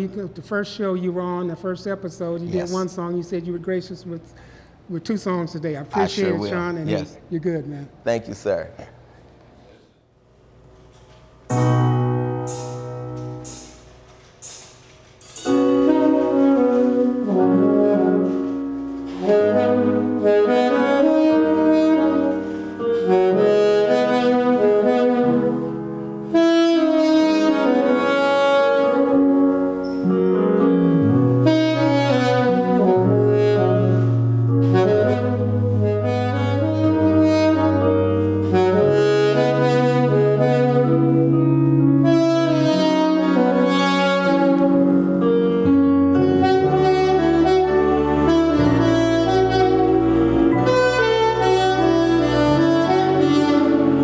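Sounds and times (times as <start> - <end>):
jazz saxophone playing: 2.4 - 2.9, 6.0 - 7.1, 11.5 - 54.0
sustained bass line: 11.5 - 13.7
accented band hits: 11.5 - 16.8.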